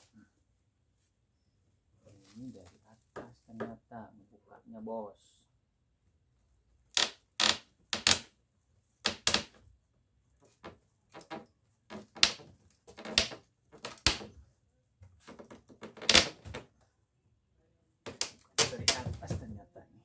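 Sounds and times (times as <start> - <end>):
metal scraping and creaking on wood: 10.4 - 14.2.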